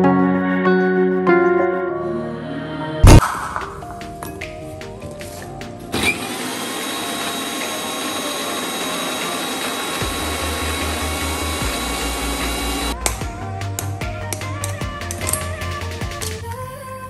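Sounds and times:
electric mixer grinder whining: 0:05.9 - 0:13.0.

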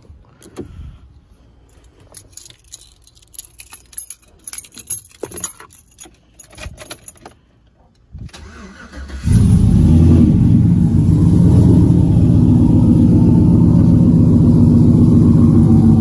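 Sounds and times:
keys jangling: 0:01.6 - 0:07.5.

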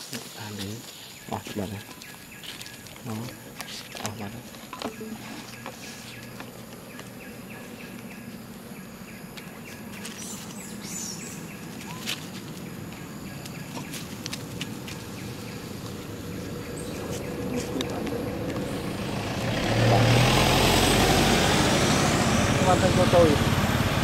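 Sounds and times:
faint insect-like tones: 0:00.0 - 0:19.0.

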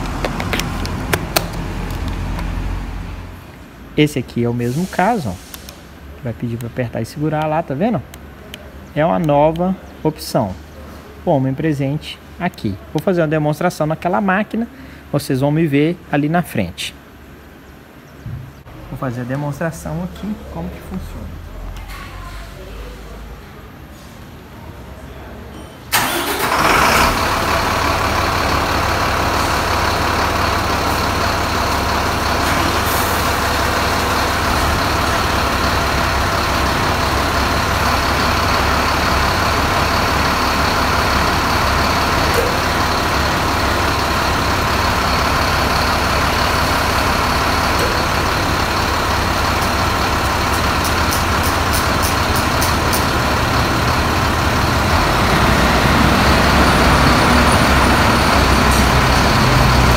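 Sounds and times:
diesel engine running: 0:00.0 - 0:13.4, 0:25.9 - 0:59.9.

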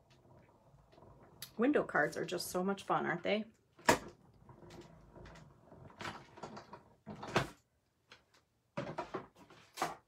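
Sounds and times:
plastic plates scraping and clacking: 0:03.8 - 0:07.6
hand-cranked machine rolling: 0:04.0 - 0:07.5.

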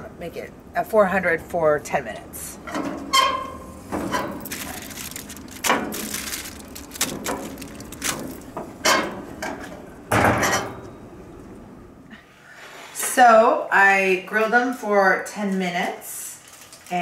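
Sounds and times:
foil packets crinkling: 0:04.3 - 0:08.6, 0:16.3 - 0:17.0.

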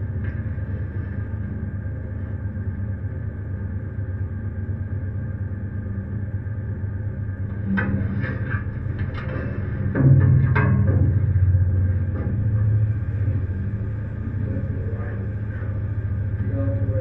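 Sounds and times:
ship engine rumbling: 0:06.6 - 0:17.0.

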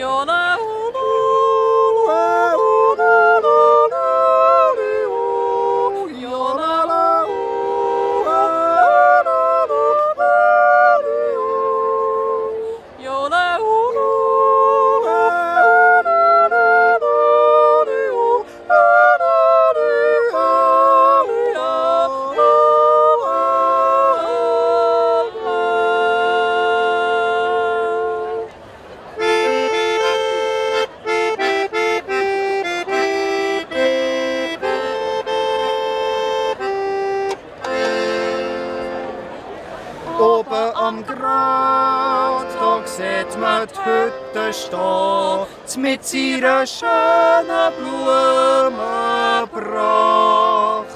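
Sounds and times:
accordion chords: 0:00.0 - 0:12.7, 0:13.6 - 0:50.9
woman and man yodeling: 0:00.0 - 0:28.6, 0:40.0 - 0:50.9.

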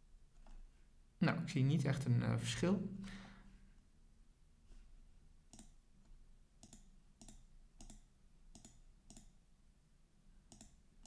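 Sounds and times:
faint computer mouse clicks: 0:05.5 - 0:05.8, 0:06.6 - 0:09.4, 0:10.5 - 0:10.8.

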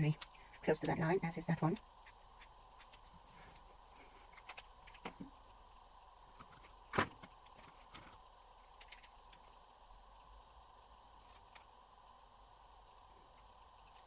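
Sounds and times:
faint steady hum: 0:00.0 - 0:14.0
pens and paper clicking: 0:08.8 - 0:09.6.

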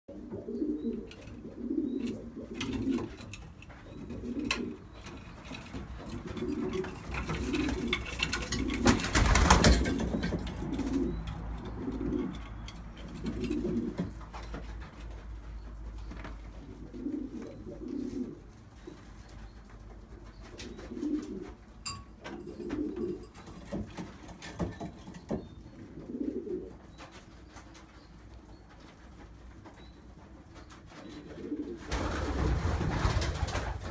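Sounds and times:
pigeons cooing: 0:00.1 - 0:28.0, 0:30.5 - 0:33.9
wings flapping: 0:05.8 - 0:11.1, 0:30.9 - 0:33.9.

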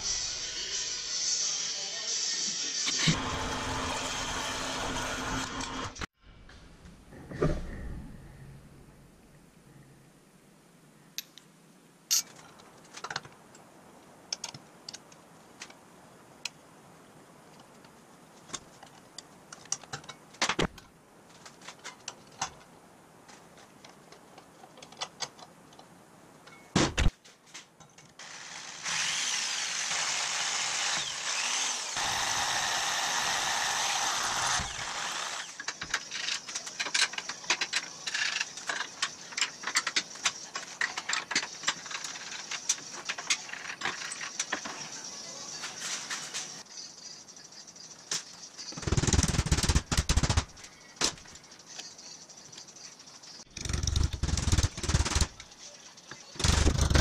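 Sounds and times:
metal parts clicking and knocking: 0:12.1 - 0:13.3, 0:35.4 - 0:45.0.

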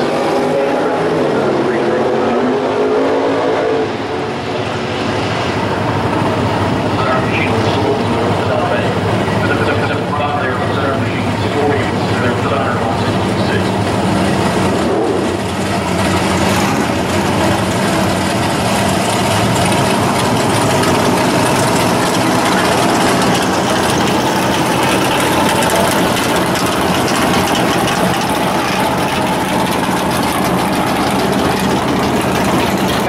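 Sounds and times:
race car engine idling loudly: 0:00.0 - 0:33.0.

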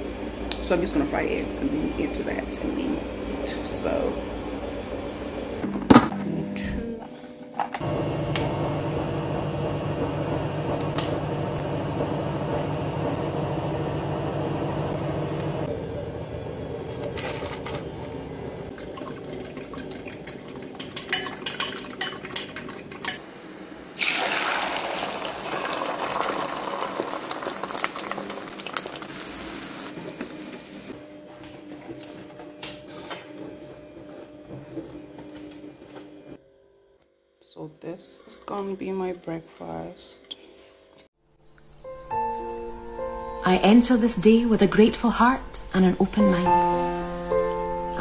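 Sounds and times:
steady hum: 0:00.0 - 0:20.5
fork whisking eggs in a bowl: 0:18.8 - 0:23.2
eggs sizzling in a frying pan: 0:24.0 - 0:30.9.

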